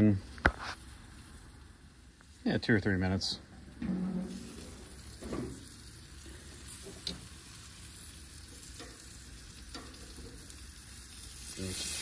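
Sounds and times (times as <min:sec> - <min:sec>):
meat sizzling on a grill: 0:00.0 - 0:12.0
metal tongs clicking on grate: 0:09.7 - 0:10.1.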